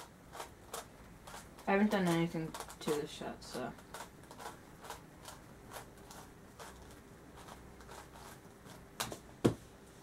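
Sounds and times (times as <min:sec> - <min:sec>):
puzzle cube plastic clicks: 0:00.3 - 0:03.0.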